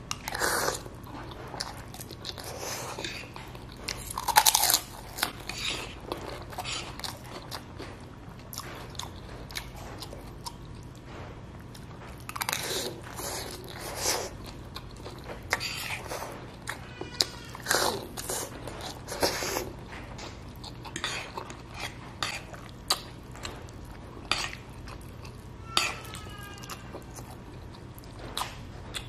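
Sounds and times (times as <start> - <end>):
man chewing and slurping noodles: 0.0 - 29.0.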